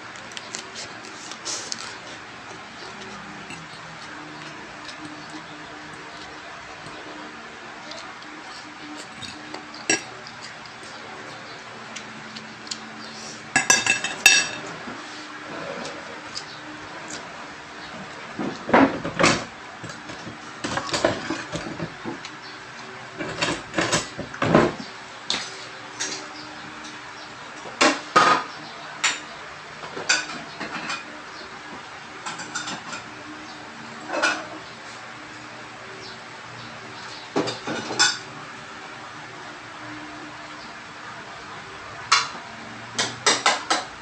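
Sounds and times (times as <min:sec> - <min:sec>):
dishes and pots clanking: 0:08.9 - 0:10.4, 0:13.5 - 0:14.9, 0:18.4 - 0:22.2, 0:23.2 - 0:27.0, 0:27.8 - 0:31.2, 0:32.2 - 0:33.1, 0:34.1 - 0:34.6, 0:37.3 - 0:38.3, 0:43.0 - 0:43.9.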